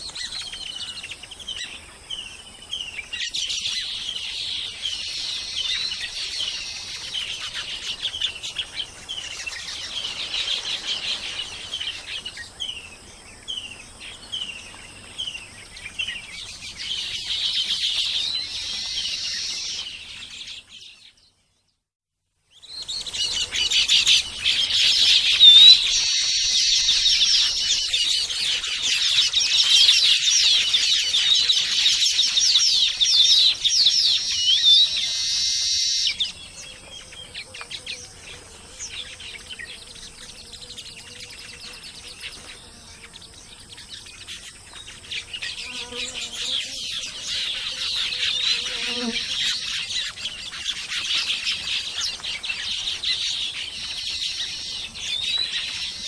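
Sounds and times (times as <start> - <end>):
birds chirping and chattering: 0.0 - 21.4, 22.5 - 56.0.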